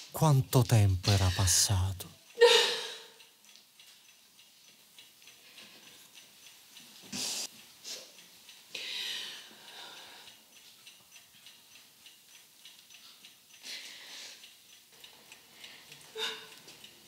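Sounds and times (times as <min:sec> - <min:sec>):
clock ticking: 0:00.0 - 0:17.0
breathy sniff: 0:07.1 - 0:08.1, 0:13.6 - 0:14.4.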